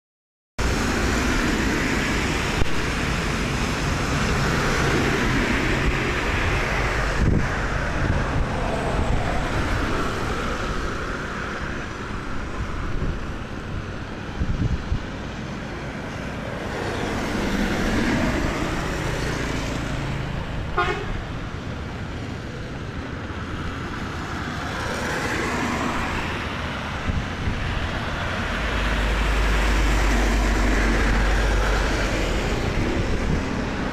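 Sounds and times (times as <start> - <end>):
tyres hissing on wet pavement: 0.6 - 33.9
vehicles passing on wet road: 0.6 - 33.9
short horn toot: 20.8 - 21.2.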